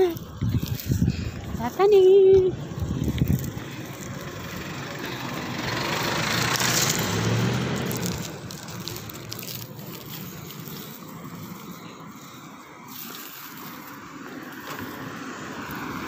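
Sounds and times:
vehicle driving past: 2.6 - 12.1.

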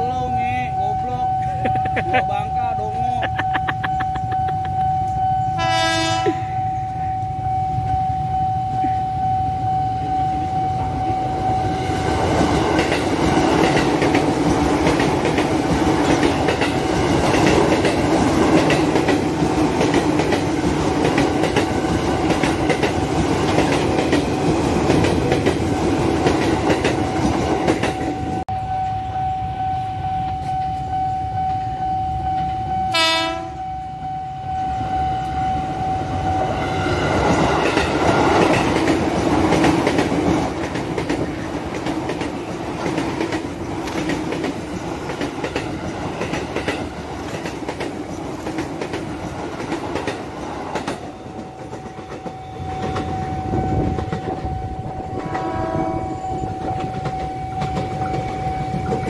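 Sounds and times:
crossing warning signal tone: 0.0 - 24.3, 26.3 - 38.9, 50.8 - 59.0
train horn blast: 5.5 - 7.6, 32.9 - 36.8, 52.6 - 57.6
train wheels clacking on rails: 11.0 - 28.4, 37.0 - 59.0.

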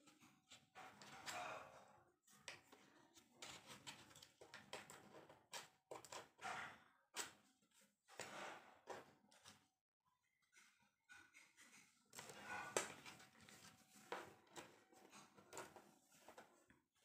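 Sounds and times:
hard plastic clicks and scrapes: 2.4 - 7.4, 11.1 - 16.8.

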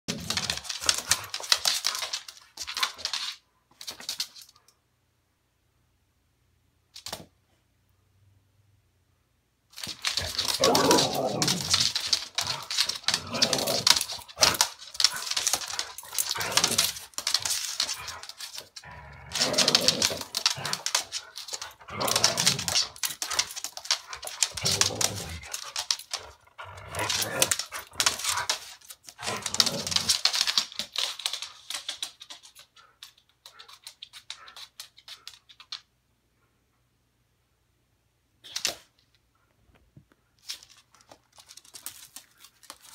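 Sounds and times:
claws clicking on hardwood floor: 0.1 - 4.7, 9.7 - 36.0, 38.5 - 42.9
dogs play vocalizing: 9.8 - 30.7.

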